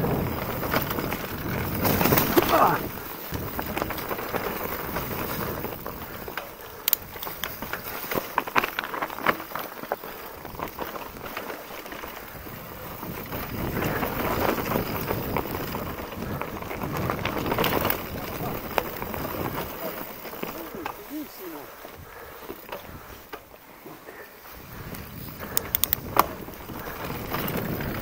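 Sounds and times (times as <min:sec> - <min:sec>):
bike rattling and knocking: 0:00.0 - 0:28.0
bike tyres hissing on dirt: 0:00.0 - 0:28.0
wind on microphone: 0:12.3 - 0:19.7, 0:24.5 - 0:28.0.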